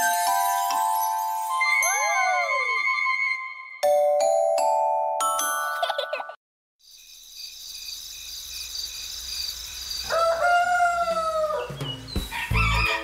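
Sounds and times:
rooster crowing: 10.0s - 13.0s.

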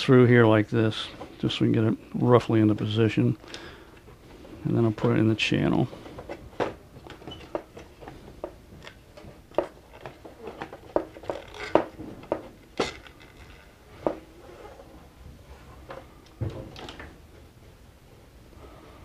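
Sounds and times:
plastic carriage parts clicking: 8.8s - 13.7s
carriage parts rattling: 9.9s - 12.0s, 12.7s - 13.8s.

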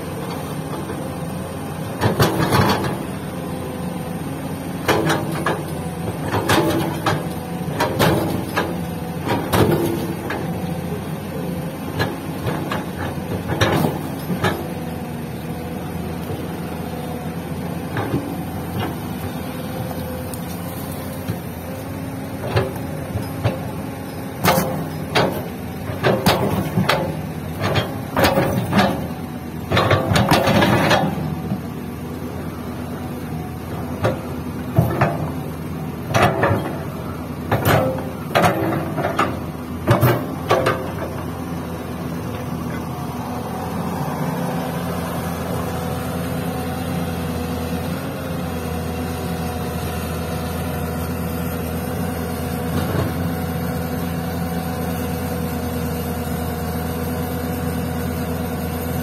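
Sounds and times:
excavator diesel engine running: 0.0s - 59.0s
excavator bucket clunks and knocks: 2.0s - 3.0s, 4.8s - 10.8s, 11.9s - 14.9s, 22.4s - 31.4s, 33.9s - 41.4s.

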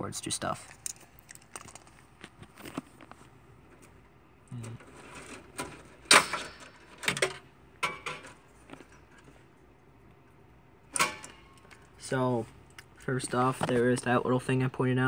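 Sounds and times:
cables rustling: 0.5s - 7.1s.

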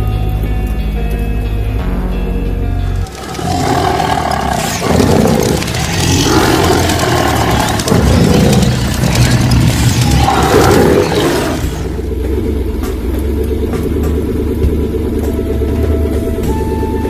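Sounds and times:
loud roaring sound effects: 2.9s - 12.1s.

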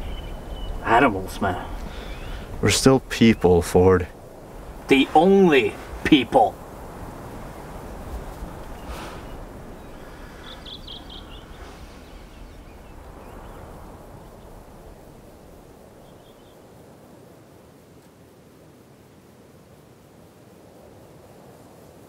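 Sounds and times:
small bird chirping: 0.0s - 2.5s, 8.7s - 14.6s, 16.0s - 16.6s
low outdoor noise: 0.0s - 22.0s.

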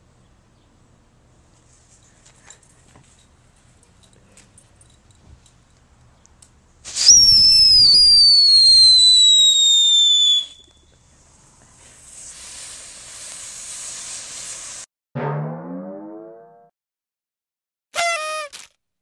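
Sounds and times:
hiss of spraying sparks: 6.8s - 8.1s, 11.6s - 14.9s
firework whistle falling in pitch: 7.0s - 10.8s, 18.0s - 18.6s.

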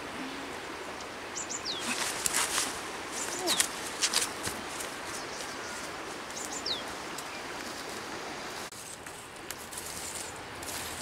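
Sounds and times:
outdoor background hiss: 0.0s - 11.0s
bird chirps: 1.4s - 2.0s, 6.4s - 7.4s.

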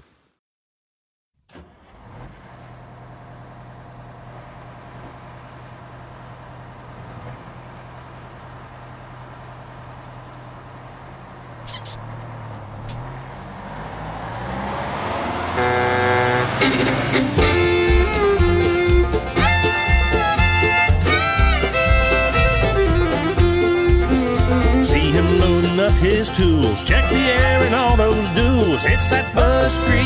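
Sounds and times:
bus diesel engine running: 1.5s - 30.0s
guitar and fiddle music: 15.6s - 30.0s.

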